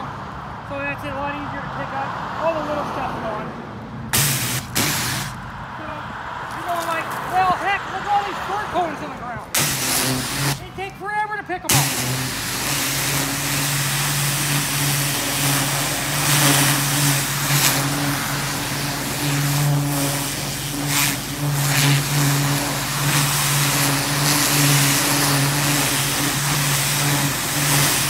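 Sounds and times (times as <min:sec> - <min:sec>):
high-pressure water jet hissing: 0:04.1 - 0:05.4, 0:09.5 - 0:10.9, 0:11.7 - 0:28.0
pressure washer humming: 0:04.1 - 0:05.4, 0:06.5 - 0:11.0, 0:11.6 - 0:28.0.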